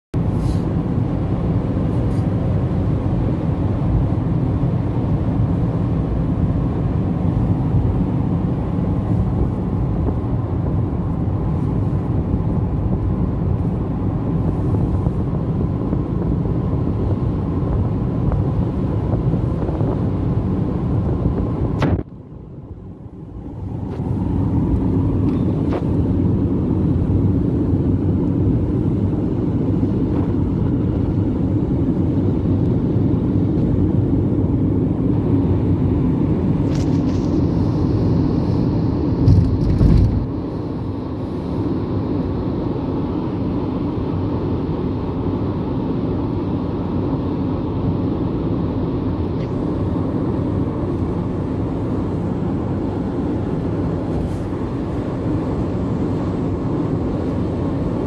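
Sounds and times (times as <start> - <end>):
car engine at highway speed: 0.1 - 58.0
wind noise: 0.2 - 58.0.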